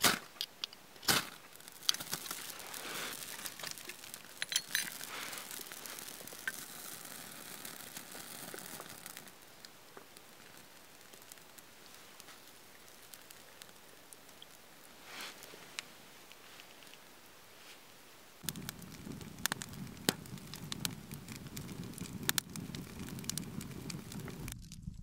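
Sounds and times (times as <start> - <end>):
twigs being handled: 0.0 - 6.9, 8.5 - 17.9
tinder crackling and hissing: 0.0 - 25.0.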